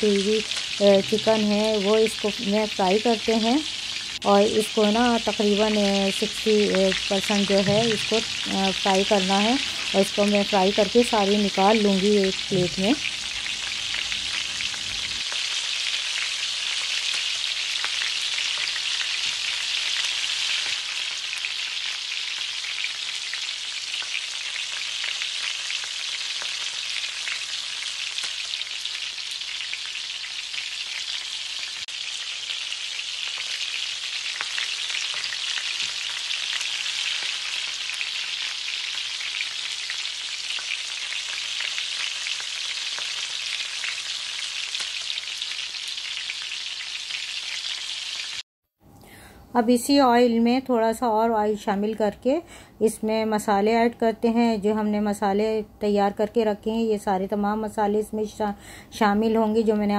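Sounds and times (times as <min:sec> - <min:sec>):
chicken frying in hot oil: 0:00.0 - 0:48.4.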